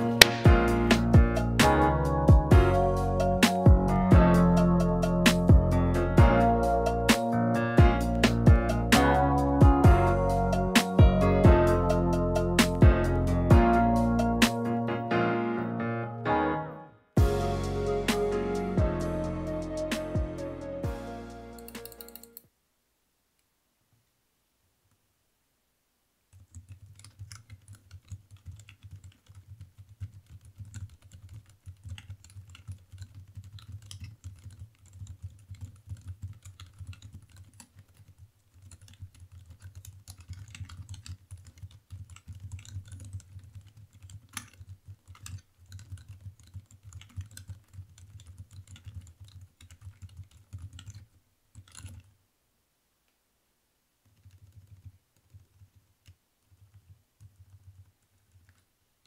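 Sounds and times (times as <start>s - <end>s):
mechanical keyboard key clicks: 26.4s - 51.0s.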